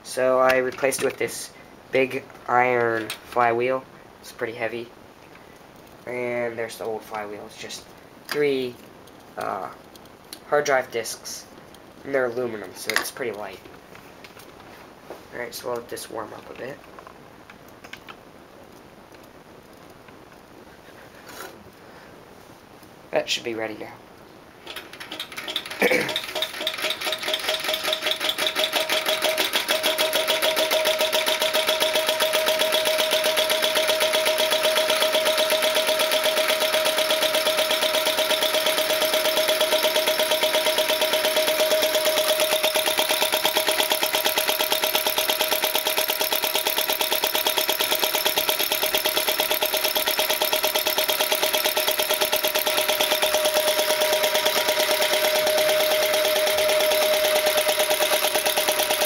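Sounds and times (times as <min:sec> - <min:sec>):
engine mechanical clatter: 0:24.7 - 0:59.0
steady high tone: 0:51.6 - 0:59.0.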